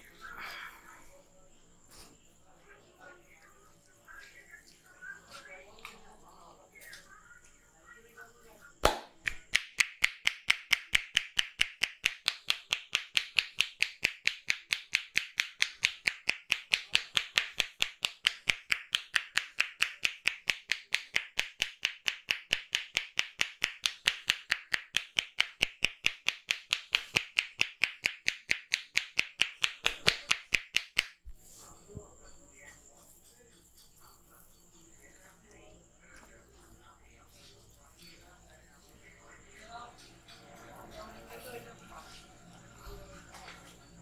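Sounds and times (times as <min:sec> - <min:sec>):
hands clapping on head: 0:08.8 - 0:31.4.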